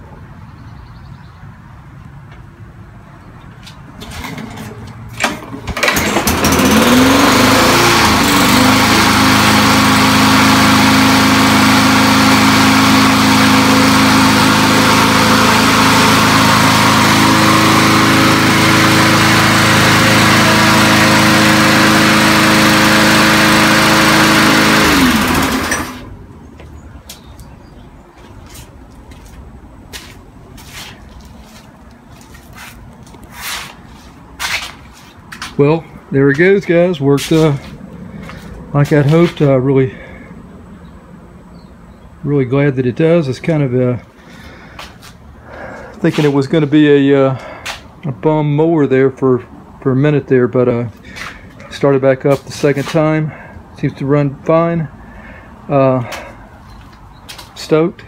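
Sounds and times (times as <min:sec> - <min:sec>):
lawn mower engine running: 0:04.0 - 0:26.8, 0:28.4 - 0:40.4, 0:43.2 - 0:48.2.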